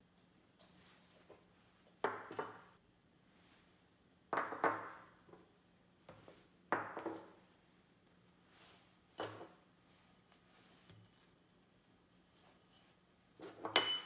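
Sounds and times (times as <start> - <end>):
ceramic dishes clinking on table: 13.6 - 14.0.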